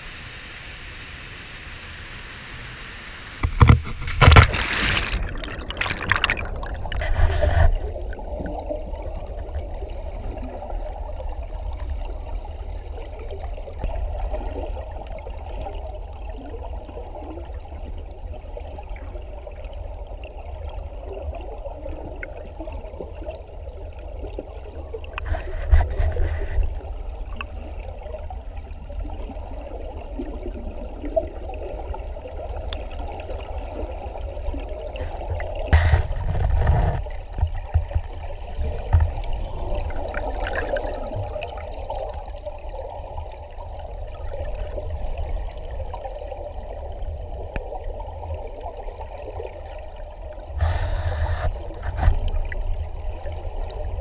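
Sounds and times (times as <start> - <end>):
muffled river rush underwater: 0.0 - 54.0
water splashing: 3.4 - 9.4, 35.0 - 43.4.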